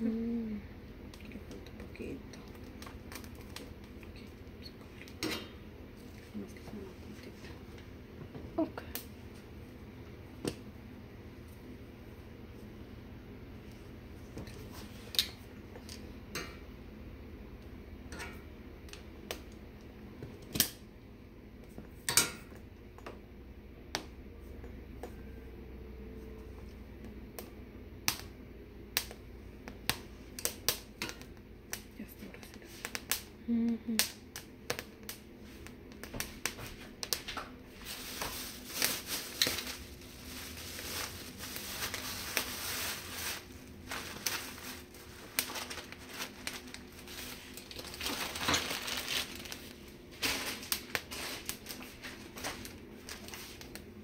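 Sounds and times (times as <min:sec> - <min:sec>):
plastic bag crinkling: 0:37.1 - 0:53.9.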